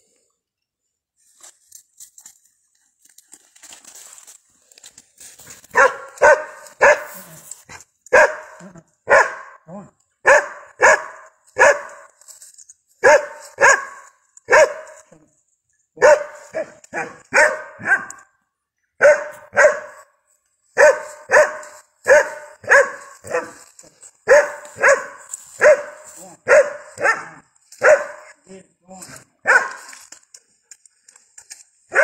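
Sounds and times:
dog barking: 5.7 - 7.4, 8.1 - 12.1, 13.0 - 15.1, 16.0 - 18.3, 19.0 - 20.1, 20.8 - 23.6, 24.2 - 28.4, 29.4 - 29.9.

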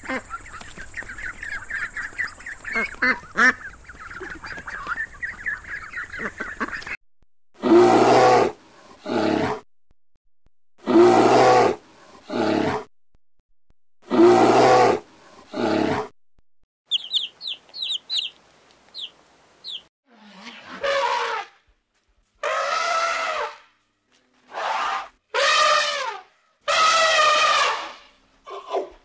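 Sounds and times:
chicks high chirps: 0.0 - 7.0, 16.9 - 19.9
ducklings peeping: 0.0 - 7.0, 16.9 - 19.9.

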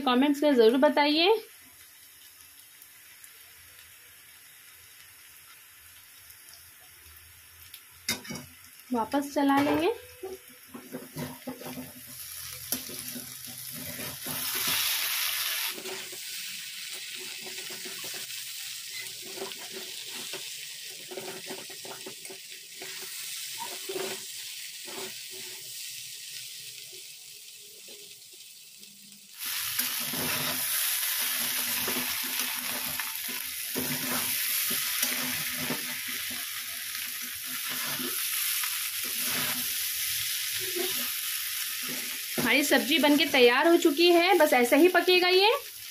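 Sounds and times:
potatoes sizzling in oil: 0.0 - 45.9
metal spatula scraping pan: 9.6 - 16.2, 17.2 - 18.3, 18.9 - 25.6, 29.8 - 36.5, 37.3 - 38.4, 39.0 - 39.8, 40.6 - 41.2.

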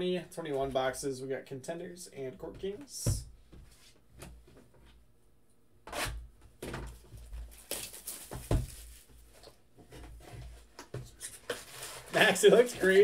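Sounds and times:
cardboard box rustling and scraping: 11.4 - 13.0.

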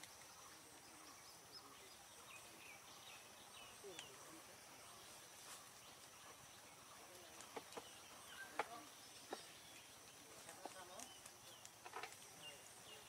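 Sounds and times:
faint high hiss: 0.0 - 13.0.

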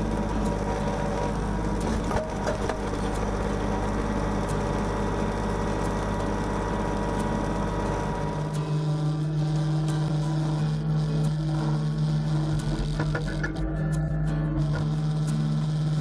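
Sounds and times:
diesel tractor engine running: 0.0 - 16.0
hydraulic clicks and knocks: 1.8 - 3.4, 12.8 - 13.6.

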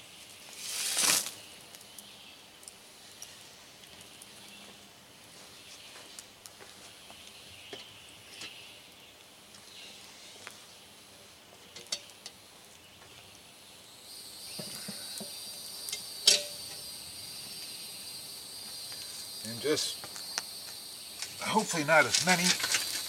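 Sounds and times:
insects trilling: 7.2 - 23.0.

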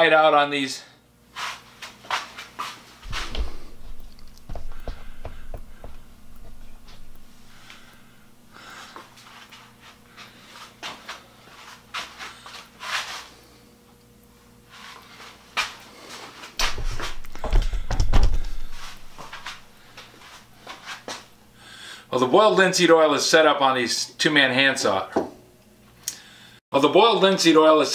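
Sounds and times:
heavy bump and rumble: 3.1 - 7.6, 16.6 - 19.2
wooden handles clicking and scraping: 3.1 - 8.0.

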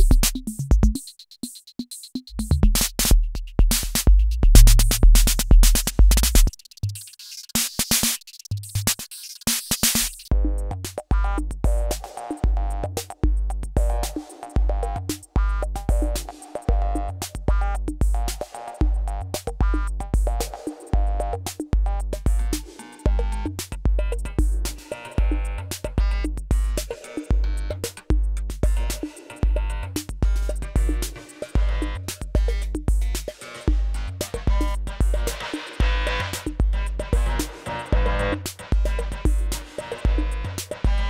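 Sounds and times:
drum machine beat: 0.0 - 41.0
pitched electronic percussion: 0.0 - 41.0.

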